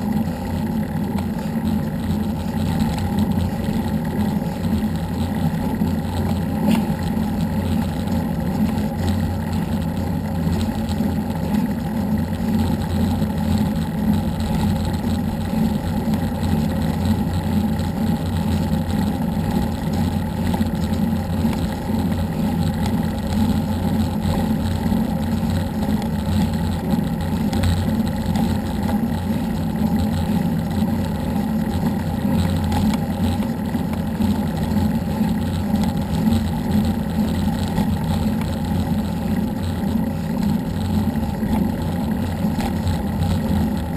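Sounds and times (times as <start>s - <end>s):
vehicle rumble at speed: 0.0s - 43.9s.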